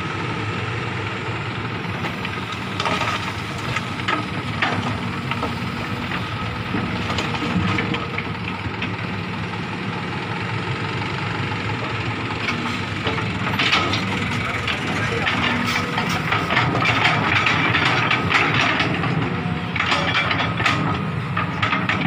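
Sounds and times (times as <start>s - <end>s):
excavator diesel engine running: 0.0s - 22.0s
truck idling: 0.0s - 22.0s
rocks clunking into steel bed: 2.1s - 8.2s, 12.5s - 22.0s.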